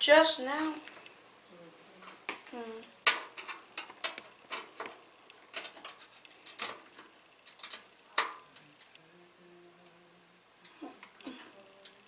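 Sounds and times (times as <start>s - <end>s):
computer parts clicking and knocking: 3.0s - 8.4s.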